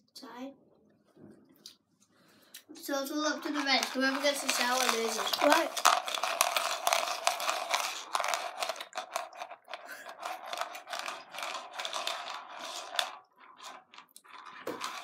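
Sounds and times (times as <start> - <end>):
hand rummaging candies in plastic bowl: 3.1 - 15.0.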